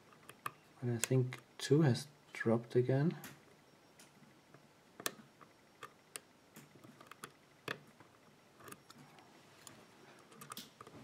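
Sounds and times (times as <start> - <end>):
lock pick clicking: 8.6 - 9.0, 9.6 - 10.9.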